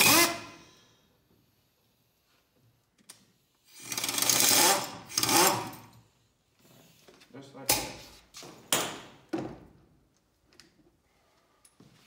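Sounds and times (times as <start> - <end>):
pneumatic impact wrench hammering: 0.0 - 0.6, 3.7 - 5.9.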